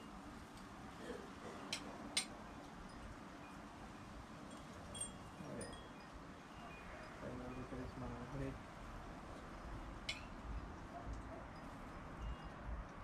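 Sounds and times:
faint outdoor hiss: 0.0 - 13.0
high tinkling notes: 4.5 - 8.5.

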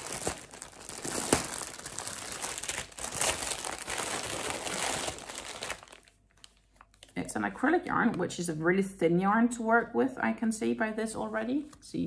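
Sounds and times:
plastic packaging crinkling: 0.0 - 7.2.

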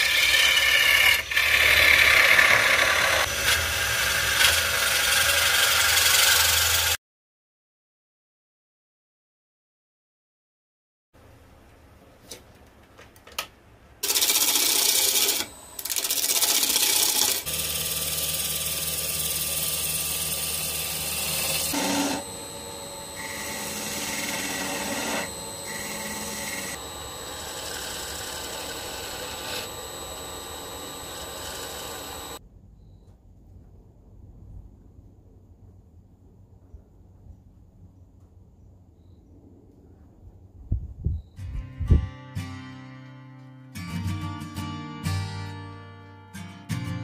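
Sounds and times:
turning tool cutting wood: 0.0 - 7.0, 14.0 - 32.4
wood lathe humming: 0.0 - 7.0, 14.0 - 32.4
faint steady whine: 21.7 - 33.3.

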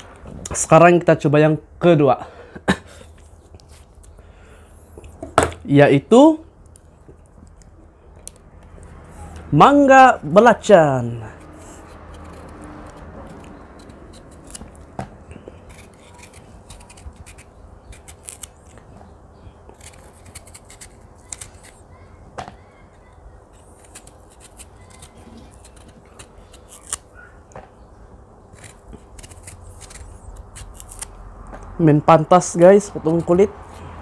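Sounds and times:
knife cutting mango skin: 8.3 - 19.0, 19.6 - 22.0, 23.0 - 27.6, 28.4 - 34.0.

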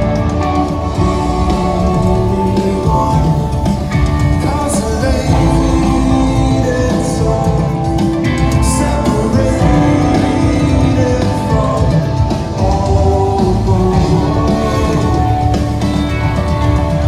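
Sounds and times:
live rock band with singer: 0.0 - 17.0.

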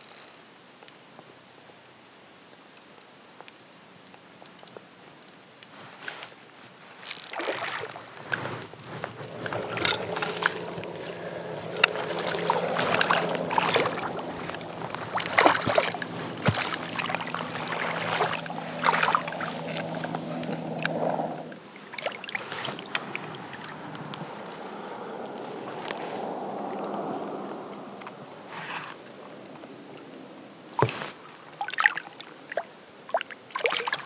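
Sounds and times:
low steady hum: 3.8 - 33.7
fish thrashing and splashing: 7.0 - 29.0.

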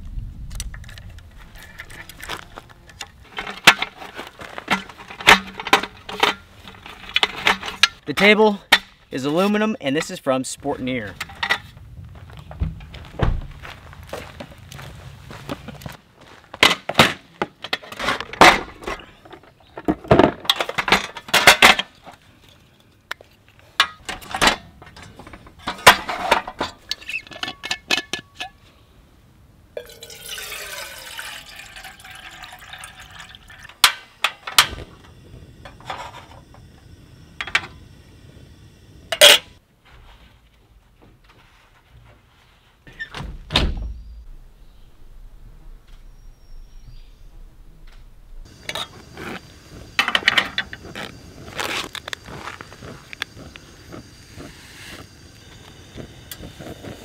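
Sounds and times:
camp stove and kettle clattering: 0.5 - 10.1, 11.1 - 11.8, 16.6 - 28.6, 29.8 - 39.6, 48.4 - 57.0
water pouring into kettle: 29.8 - 33.8.

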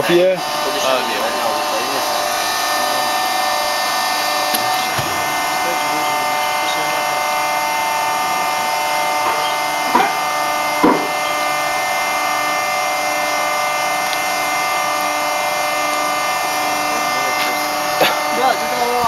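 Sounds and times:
machine whine: 0.0 - 19.0
short knocks: 10.8 - 11.2.

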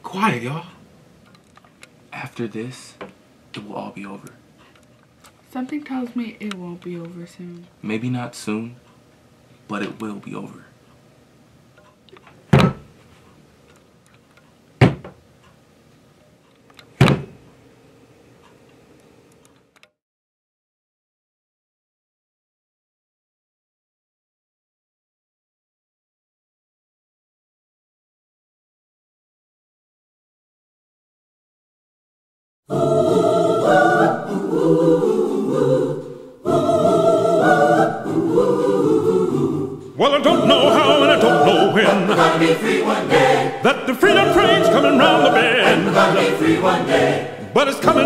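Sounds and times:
choir singing gospel song: 32.7 - 48.0.

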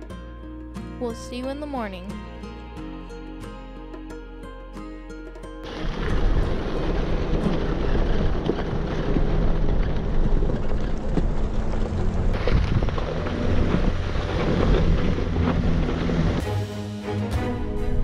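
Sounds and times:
tyres crunching over gravel: 5.6 - 16.5
engine rumble: 5.6 - 18.0.

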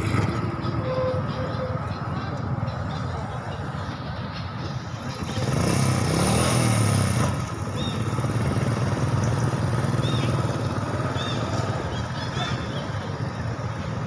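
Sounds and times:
small engine running: 5.0 - 14.0.

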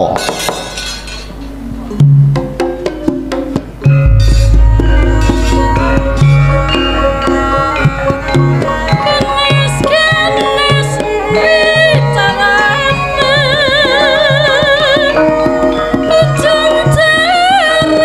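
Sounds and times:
gamelan ensemble playing: 2.4 - 17.1
drum strokes: 3.9 - 10.0
woman singing with vibrato: 4.1 - 15.4, 16.1 - 18.0.

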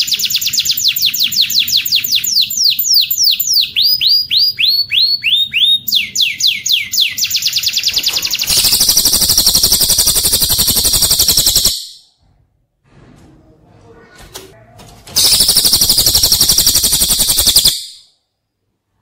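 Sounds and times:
bird whistling downward notes: 0.4 - 12.0, 15.2 - 18.0
fast dry bird trill: 6.8 - 12.0, 15.2 - 18.0.

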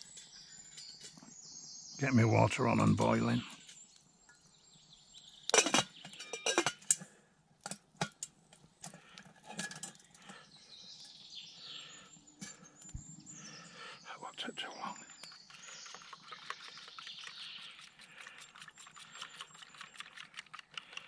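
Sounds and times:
metal pot and lid clinking: 5.5 - 8.3, 9.4 - 10.1.

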